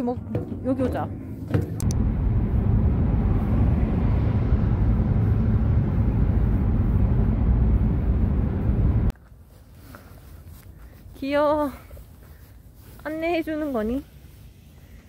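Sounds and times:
car cabin road and engine rumble: 0.0 - 9.2.

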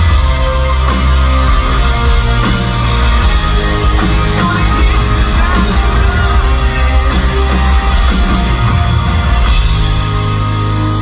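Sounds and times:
electric guitars: 0.0 - 11.0
live rock band playing: 0.0 - 11.0
person singing into microphone: 4.2 - 8.2.

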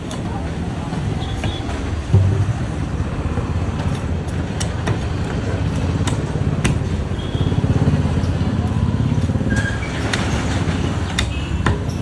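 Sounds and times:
motor vehicle rumble: 0.0 - 12.0
knife chopping fish on wood: 3.8 - 7.0.

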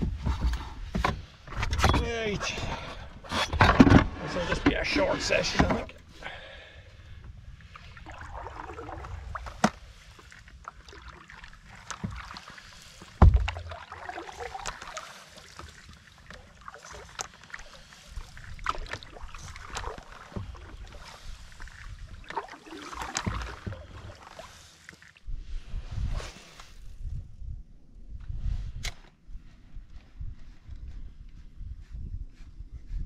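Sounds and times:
water lapping at hull: 4.3 - 25.3
paddle swishing and dripping: 7.1 - 26.9.

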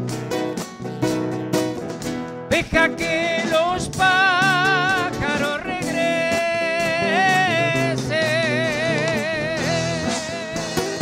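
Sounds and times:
acoustic guitar: 0.0 - 11.0
drums: 0.0 - 11.0
electric bass: 0.0 - 11.0
man singing with vibrato: 2.5 - 11.0.

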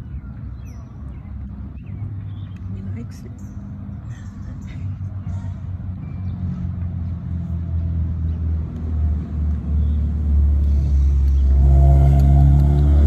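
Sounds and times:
passing motor vehicle rumble: 0.0 - 13.0
pitched drone: 10.6 - 13.0.

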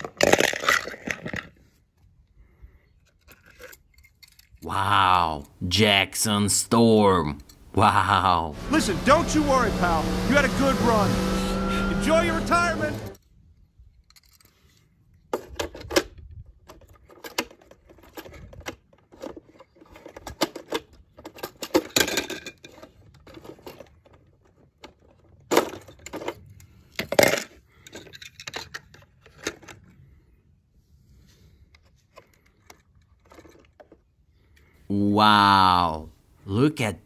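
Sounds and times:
toy cars clicking and rattling: 0.0 - 1.6, 3.0 - 4.6, 13.9 - 14.6, 16.7 - 29.9, 31.8 - 34.2.

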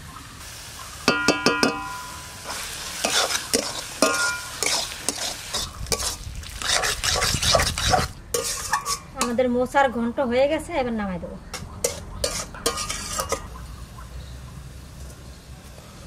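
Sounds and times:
curry sizzling: 0.0 - 9.8, 11.5 - 16.0
metal spatula clanging on pan: 1.0 - 9.4, 11.5 - 13.5
spatula scraping pan: 1.7 - 9.4, 11.6 - 13.5.

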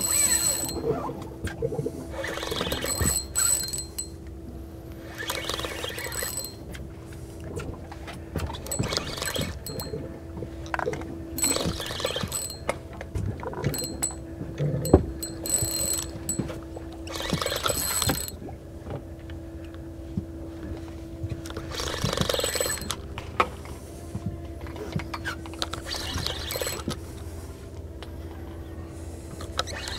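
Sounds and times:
fishing reel clicking: 0.0 - 0.8, 2.2 - 4.2, 5.1 - 6.6, 8.6 - 10.0, 11.4 - 12.6, 13.7 - 14.2, 15.2 - 16.4, 17.1 - 18.4, 21.7 - 23.0, 25.6 - 27.0
low steady hum: 0.0 - 29.9.

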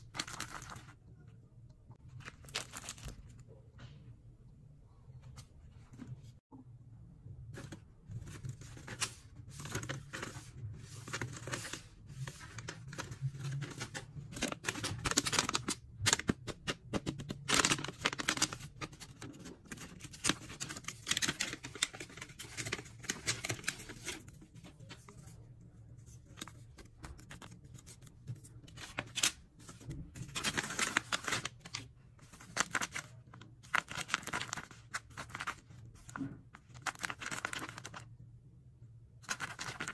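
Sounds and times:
paper crinkling and tearing: 8.2 - 16.4, 17.3 - 25.1, 26.2 - 38.0, 39.2 - 39.9.

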